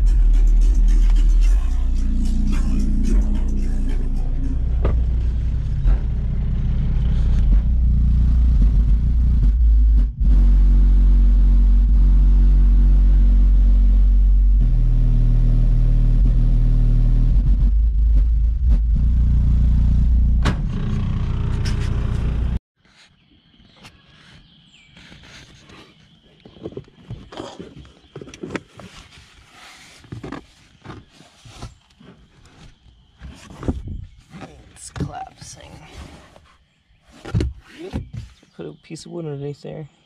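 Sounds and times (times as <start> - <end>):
deep bass through subwoofer: 0.0 - 22.6.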